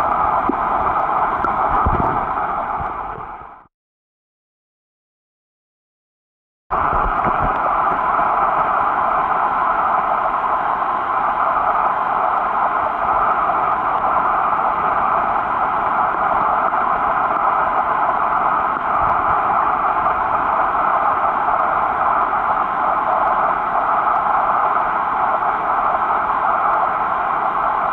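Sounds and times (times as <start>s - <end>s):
underwater hiss: 7.1s - 27.9s.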